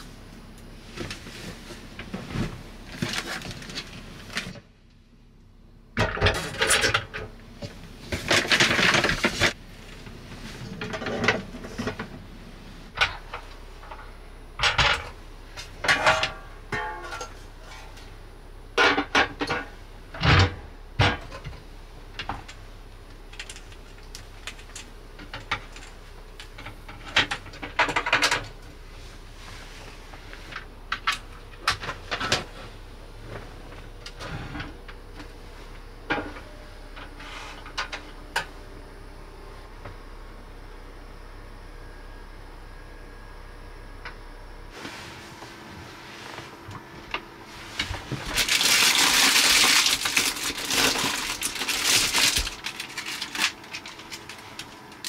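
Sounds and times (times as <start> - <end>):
pan and lid clattering: 15.8 - 17.4.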